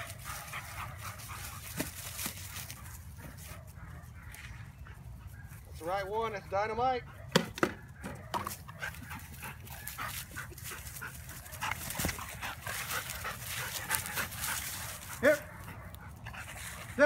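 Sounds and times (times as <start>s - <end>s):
dog panting: 8.7s - 16.9s
rustling: 8.8s - 15.8s.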